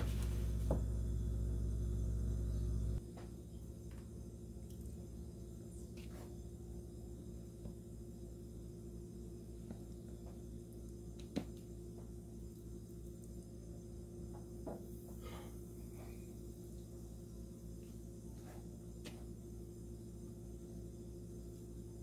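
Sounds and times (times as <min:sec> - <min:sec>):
rustling and patting in flour: 0:00.0 - 0:01.1, 0:05.8 - 0:06.6
low hum: 0:00.0 - 0:22.0.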